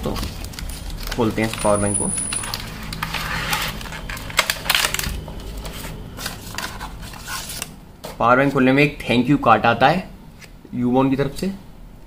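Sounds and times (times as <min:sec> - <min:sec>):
cardboard and plastic rustling: 0:00.0 - 0:08.2.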